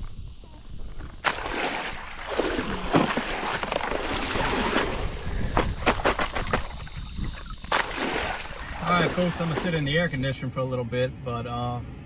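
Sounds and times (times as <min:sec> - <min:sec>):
water sloshing and splashing: 0:01.0 - 0:10.0
sharp splashes or knocks: 0:01.2 - 0:09.9.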